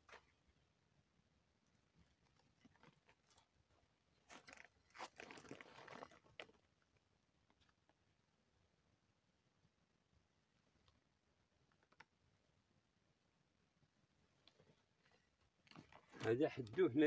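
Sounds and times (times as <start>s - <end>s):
dry grass and soil crunching: 1.9s - 6.7s.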